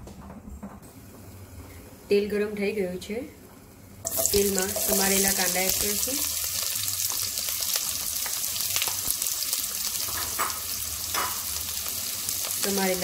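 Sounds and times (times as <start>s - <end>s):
onions sizzling in oil: 4.0s - 13.0s.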